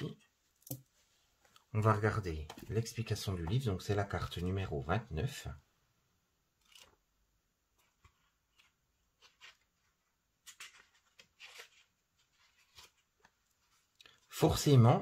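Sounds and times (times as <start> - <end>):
booklet pages rustling: 6.6 - 7.0, 7.7 - 14.8.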